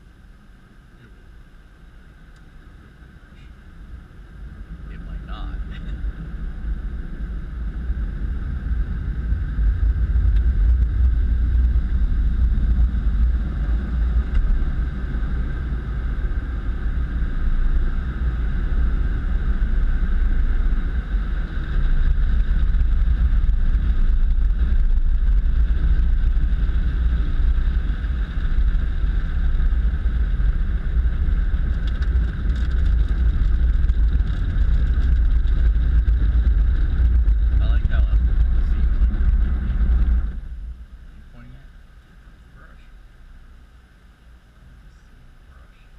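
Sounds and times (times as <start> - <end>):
car wash machinery rumble: 0.0 - 45.9.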